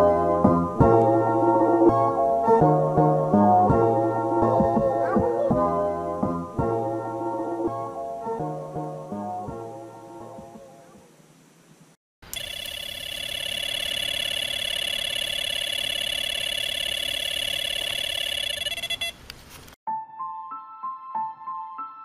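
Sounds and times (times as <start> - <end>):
soft music: 0.0 - 10.9, 19.9 - 22.0
electronic bite alarm tone: 12.3 - 19.2.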